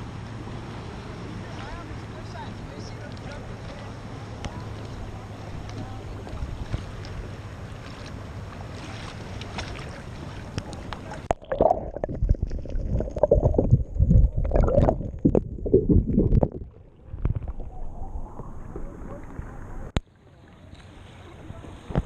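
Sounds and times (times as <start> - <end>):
sea water: 0.0 - 22.0
underwater sloshing: 0.5 - 22.0
wind on microphone: 11.6 - 20.0.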